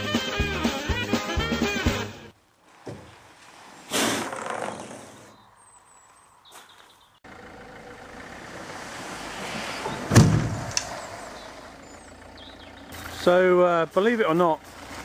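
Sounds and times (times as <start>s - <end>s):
heavy object scraping out of van: 2.8s - 5.3s, 8.5s - 12.0s
loud thud on gravel: 10.1s - 10.7s.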